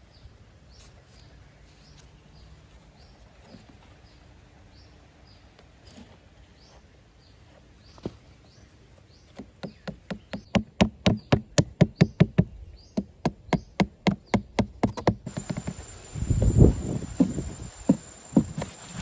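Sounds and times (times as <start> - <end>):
hatchet knocking on cardboard: 9.3 - 15.8, 17.2 - 18.7.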